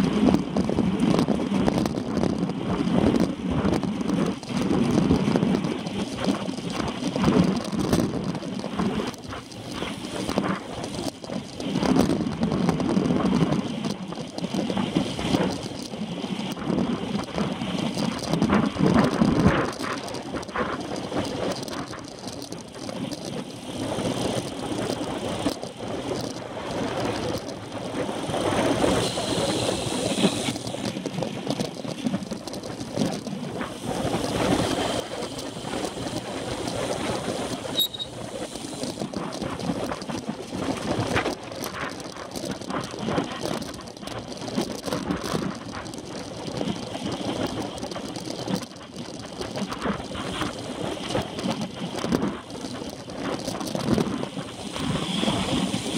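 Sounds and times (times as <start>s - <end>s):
wind on microphone: 0.0s - 55.9s.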